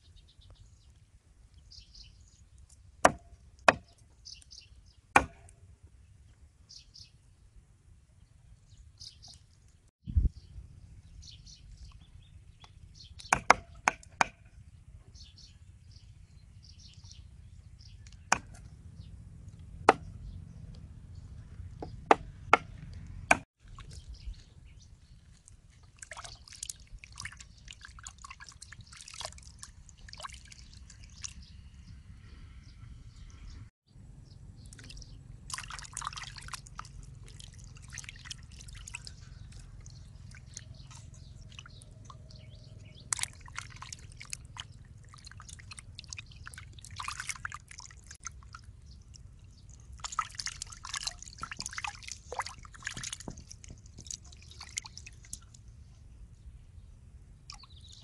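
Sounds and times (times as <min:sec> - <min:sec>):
hands splashing shrimp in water: 0:25.3 - 0:31.4, 0:34.7 - 0:42.3, 0:43.0 - 0:55.6.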